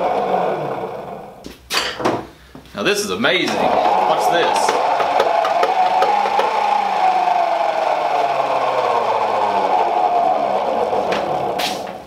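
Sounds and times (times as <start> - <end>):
flywheel whirring hum: 3.6 - 12.0.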